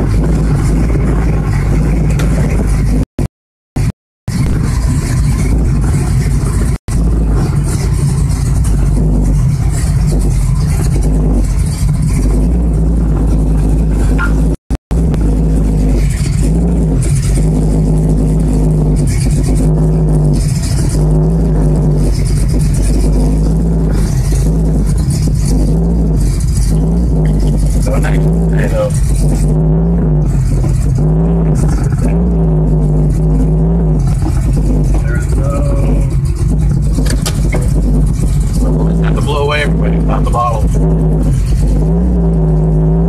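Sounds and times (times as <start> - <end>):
car engine revving: 0.0 - 43.0.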